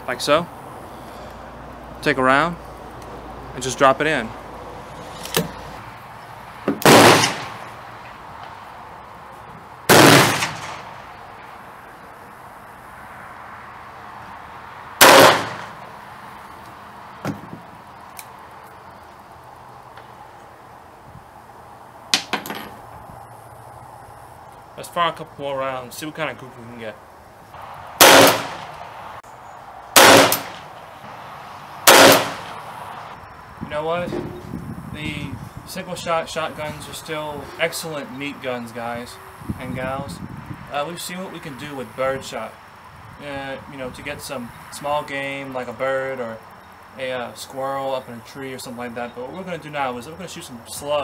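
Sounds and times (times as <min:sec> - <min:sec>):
loud gunshots: 0:06.8 - 0:07.6, 0:09.9 - 0:10.9, 0:15.0 - 0:15.8, 0:28.0 - 0:28.8, 0:29.9 - 0:30.7, 0:31.8 - 0:32.6.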